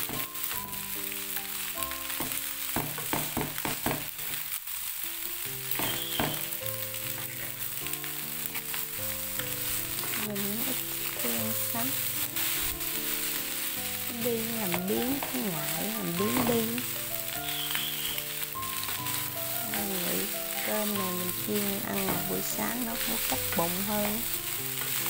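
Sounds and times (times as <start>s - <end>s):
background music: 0.0s - 3.1s, 5.1s - 25.0s
rice sizzling in a frying pan: 0.0s - 25.0s
wooden spatula scraping pan: 5.8s - 25.0s.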